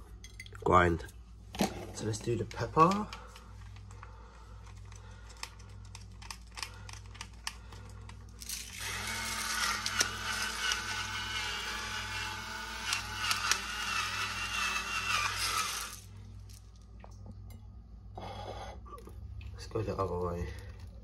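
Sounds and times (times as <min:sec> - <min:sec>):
electric pepper grinder whirring: 0:08.4 - 0:16.6.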